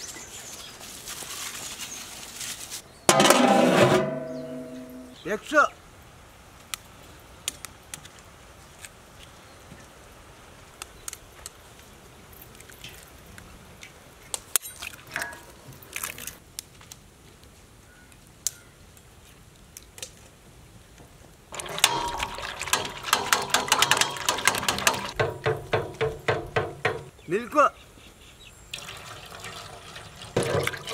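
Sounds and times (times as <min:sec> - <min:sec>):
eggs beaten in steel bowl: 0:21.6 - 0:26.7.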